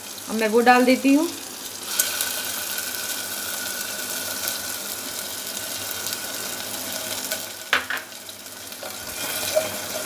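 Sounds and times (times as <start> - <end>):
paste sizzling in hot oil: 0.0 - 10.0
wooden spatula scraping pot: 8.8 - 10.0.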